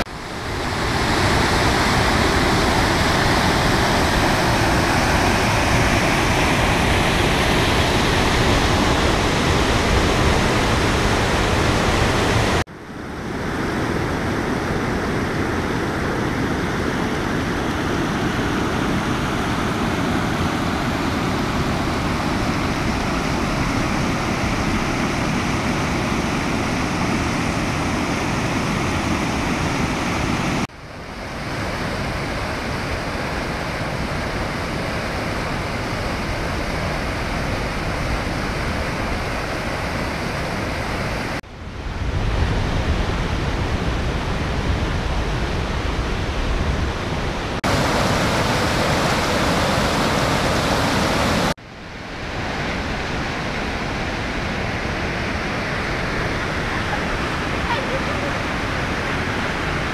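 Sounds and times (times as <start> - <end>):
waterfall rushing over rock: 0.0 - 12.6, 47.6 - 51.6.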